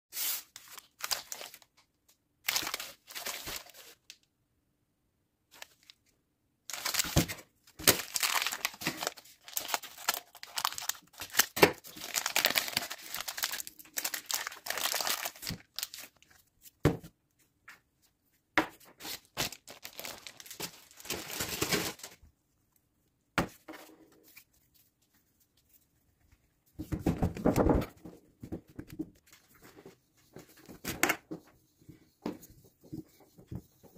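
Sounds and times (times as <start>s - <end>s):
material crinkling and tearing: 6.7s - 16.5s, 19.0s - 22.2s.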